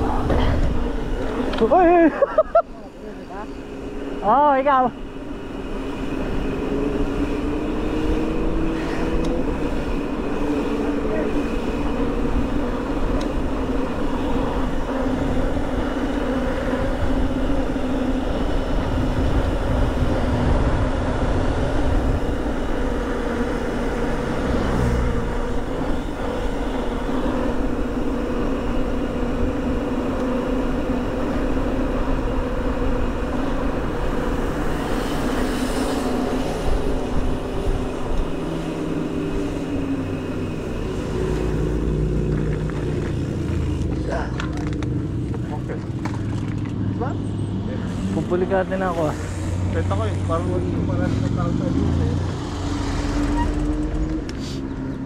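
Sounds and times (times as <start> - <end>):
bike tyres humming on asphalt: 0.0 - 55.0
wind buffeting microphone: 5.0 - 44.0.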